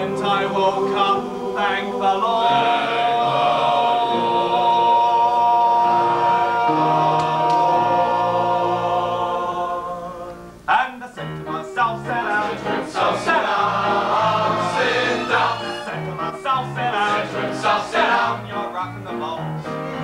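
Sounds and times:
chorus singing sustained chord: 0.0s - 10.7s
band playing swing rhythm: 11.2s - 20.0s.

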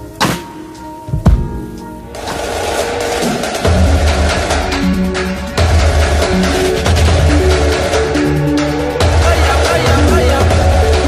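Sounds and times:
drum hit with bass thud: 1.1s - 4.2s
dense swell of noise: 1.8s - 5.6s.

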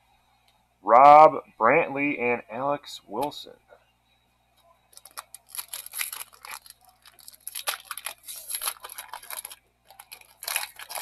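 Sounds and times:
foil wrapper crinkling and tearing: 4.9s - 11.0s.

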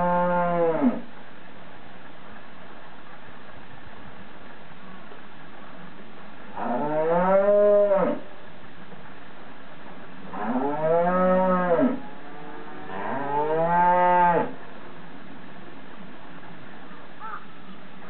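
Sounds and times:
cow mooing: 6.6s - 8.2s, 10.3s - 14.6s.

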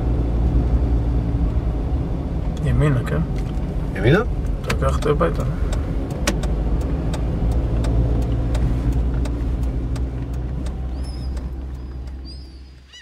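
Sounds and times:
car engine and road rumble: 0.0s - 13.0s
regular ticking: 2.5s - 12.6s.

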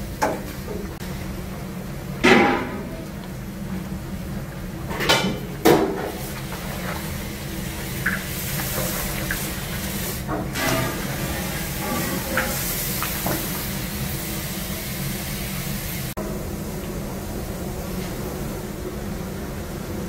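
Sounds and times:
meat sizzling in a kettle: 6.1s - 16.2s.

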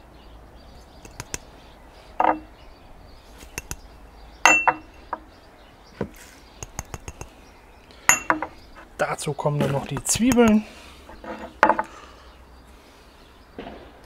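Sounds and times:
glass dishes clinking: 2.2s - 2.5s, 4.4s - 5.0s, 8.1s - 8.6s.

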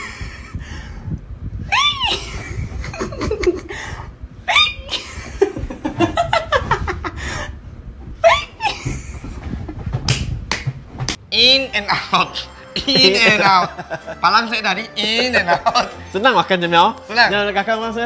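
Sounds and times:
woman laughing hard: 1.7s - 3.9s, 4.5s - 7.5s, 8.2s - 9.0s, 12.7s - 14.2s.

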